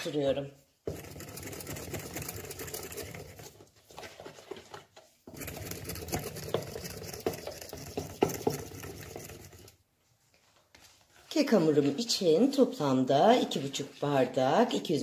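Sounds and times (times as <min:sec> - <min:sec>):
hand whisk beating batter: 0:00.0 - 0:10.0.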